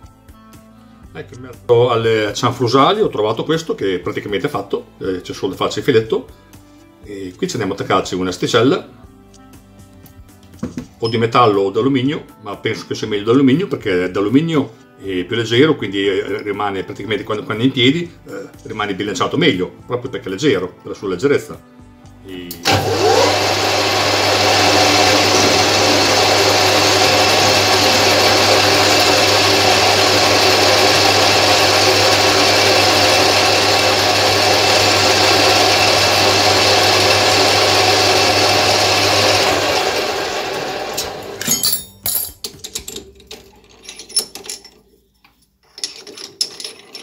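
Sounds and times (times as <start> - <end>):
metal lathe running: 22.6 - 41.5.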